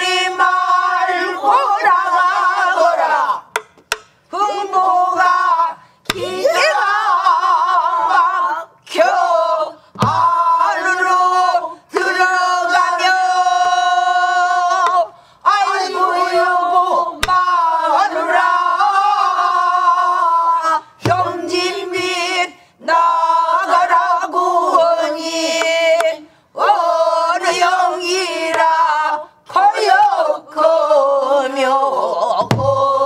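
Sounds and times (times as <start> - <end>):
group singing in unison: 0.0 - 33.0
barrel drum strokes: 10.0 - 10.4.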